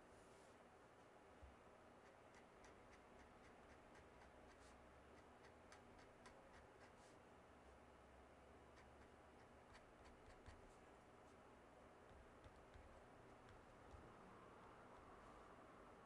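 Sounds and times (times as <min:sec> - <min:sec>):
pen nib scratching on paper: 0:02.0 - 0:07.1, 0:08.7 - 0:10.8, 0:12.1 - 0:14.2.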